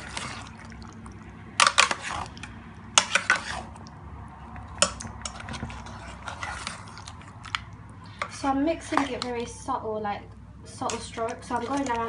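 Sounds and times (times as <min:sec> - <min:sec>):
spatula scraping metal pan: 0:01.6 - 0:03.8, 0:05.1 - 0:07.2.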